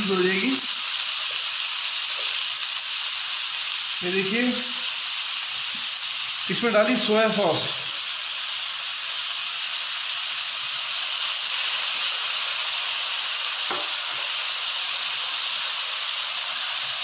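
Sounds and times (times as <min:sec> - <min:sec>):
vegetables sizzling in a pan: 0:00.0 - 0:17.0.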